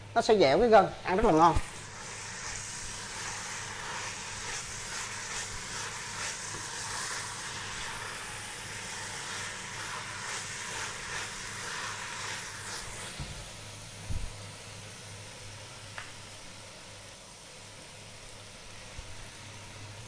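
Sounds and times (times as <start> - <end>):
meat sizzling in a pot: 1.1 - 20.0
spoon stirring strokes: 1.4 - 13.2.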